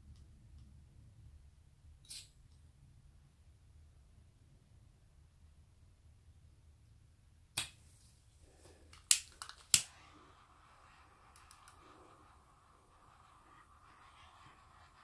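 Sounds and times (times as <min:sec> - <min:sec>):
torch flame hissing: 0:08.5 - 0:15.0.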